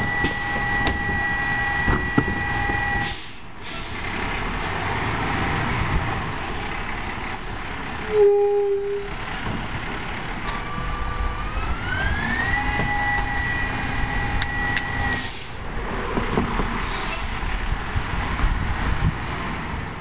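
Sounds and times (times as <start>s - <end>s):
hydraulic whine: 0.0s - 3.2s, 10.5s - 15.5s.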